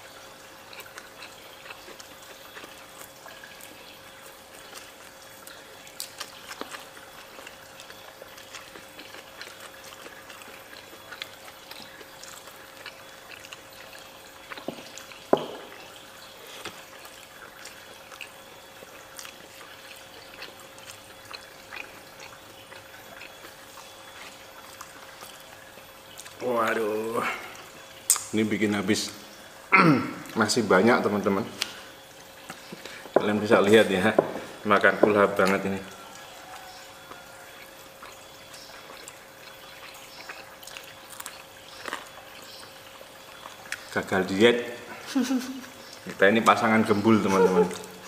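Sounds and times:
wet chewing and lip-smacking: 0:00.0 - 0:26.8, 0:27.5 - 0:28.3, 0:35.3 - 0:44.1
faint steady hum: 0:00.0 - 0:48.0.

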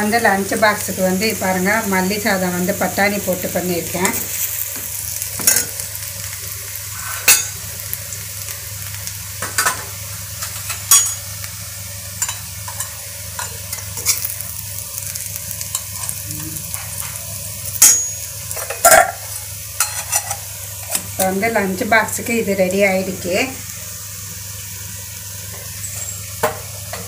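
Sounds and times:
hot pan sizzling: 0:00.0 - 0:27.0
sharp metal clink: 0:17.8 - 0:18.2.

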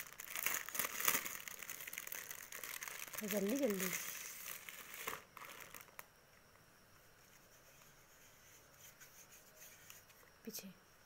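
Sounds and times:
plastic bag crinkling: 0:00.0 - 0:06.1.

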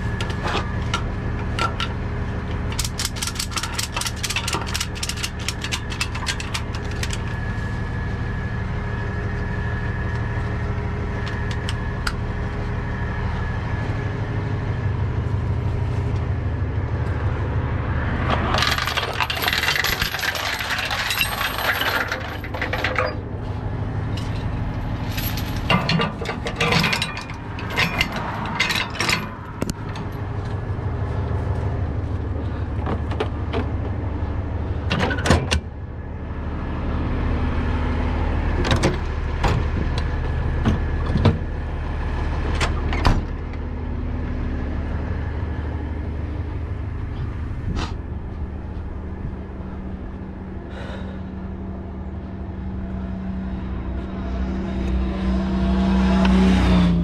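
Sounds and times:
truck engine idling: 0:00.0 - 0:54.1
tow chains clanking: 0:02.7 - 0:07.3, 0:18.3 - 0:23.4, 0:24.0 - 0:30.2.

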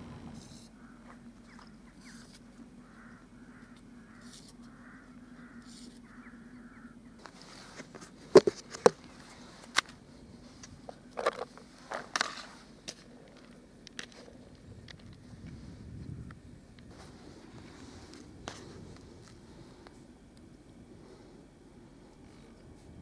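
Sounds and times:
bird calling: 0:00.0 - 0:09.8.

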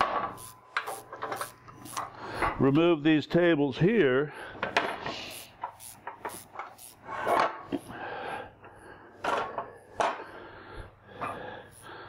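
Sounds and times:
metal rubbing and scraping: 0:04.9 - 0:07.7.

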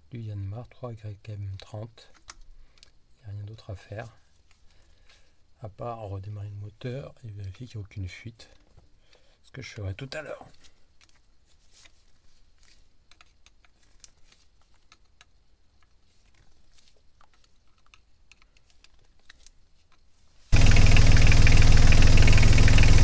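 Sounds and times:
diesel engine idling loudly: 0:20.6 - 0:23.0.

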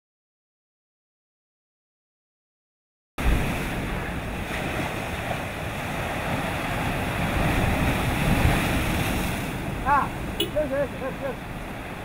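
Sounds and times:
waves breaking on rocky shore: 0:03.2 - 0:12.0.

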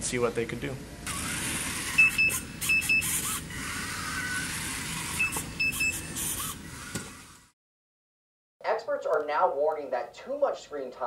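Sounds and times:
small gear motors whirring: 0:01.0 - 0:07.6
short high beeps: 0:02.0 - 0:03.2, 0:05.2 - 0:06.1.

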